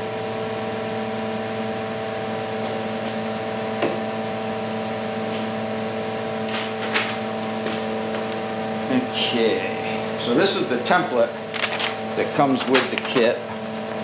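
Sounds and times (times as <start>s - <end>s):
machine hum: 0.0s - 14.0s
paper rustling: 11.5s - 12.0s.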